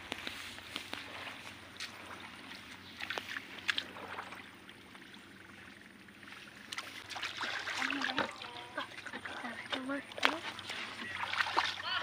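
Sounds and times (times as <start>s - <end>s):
hands splashing in muddy water: 6.6s - 12.0s.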